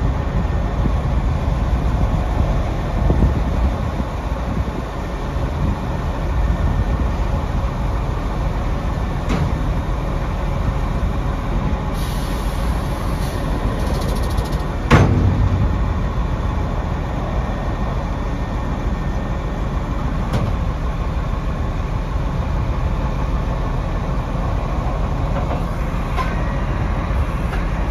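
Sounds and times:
diesel engine running: 0.0s - 27.9s
brief hiss: 12.0s - 14.2s
hydraulic boom folding: 13.1s - 16.5s
loud metallic clank: 14.7s - 16.8s.

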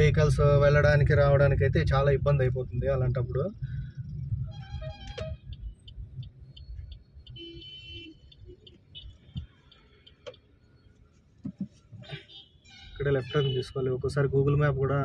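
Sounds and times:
engine and road rumble: 0.0s - 15.0s
turn indicator ticking: 5.0s - 12.0s.

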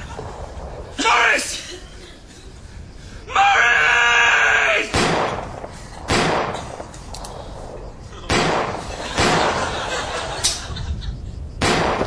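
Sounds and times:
sharp bangs: 4.7s - 10.8s, 11.6s - 12.0s.

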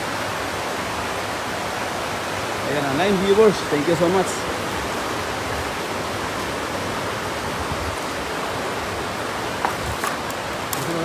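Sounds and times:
river water flowing over stones: 0.0s - 11.0s.

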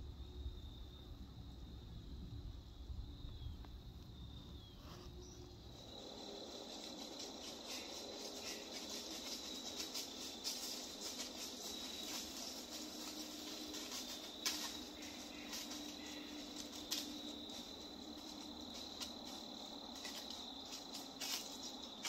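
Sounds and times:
insects trilling: 0.0s - 22.0s
rustle in dry leaf litter: 4.8s - 22.0s.

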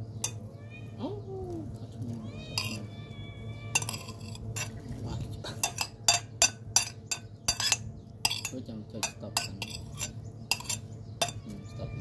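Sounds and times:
metal spoon scraping ceramic plate: 2.6s - 2.8s, 3.7s - 4.8s, 5.6s - 11.5s.

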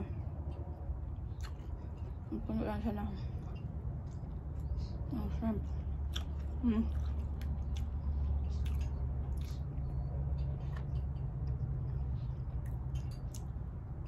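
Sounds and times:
steady low hum: 0.0s - 14.0s
person chewing food: 0.3s - 2.3s, 5.7s - 14.0s.

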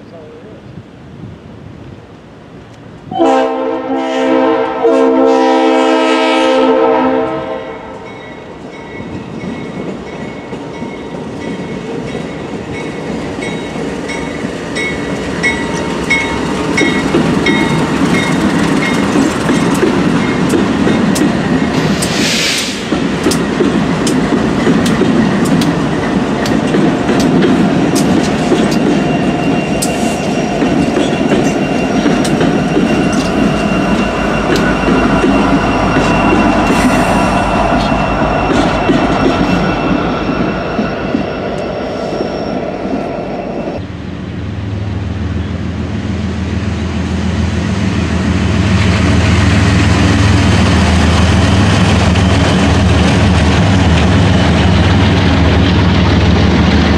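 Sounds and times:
locomotive engines rumbling: 0.0s - 56.9s
locomotive horn: 3.1s - 8.1s
wheels clicking over rail joints: 15.4s - 22.1s, 22.8s - 36.8s
short hiss: 21.8s - 22.9s.

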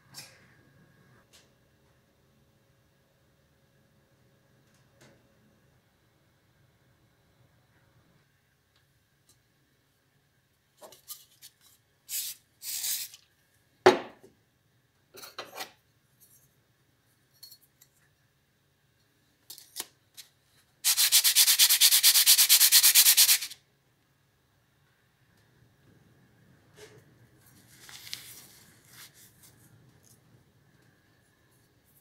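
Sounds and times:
spray can hissing: 12.1s - 13.1s, 20.8s - 23.6s.

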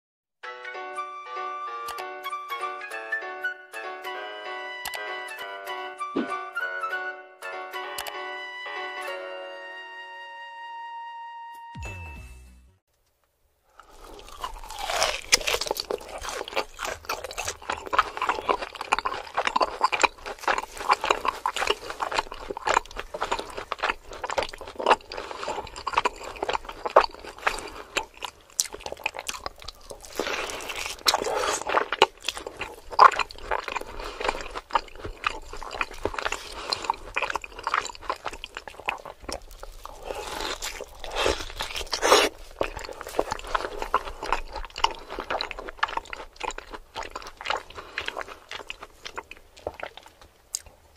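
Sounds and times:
man chewing meat: 13.8s - 50.9s.

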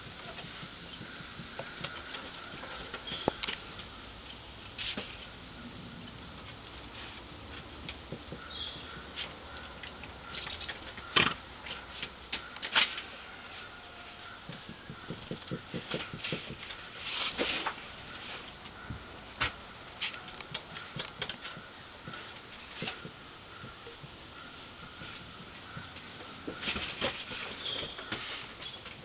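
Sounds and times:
high insect trill: 0.0s - 29.0s.

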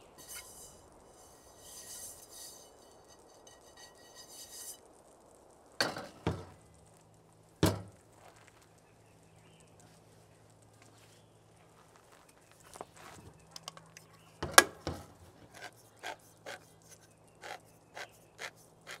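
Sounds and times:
frying pan rattling: 0.0s - 4.8s, 5.8s - 6.6s, 7.6s - 8.0s, 14.4s - 16.6s
cookware clanking: 0.2s - 4.7s, 5.8s - 6.6s.

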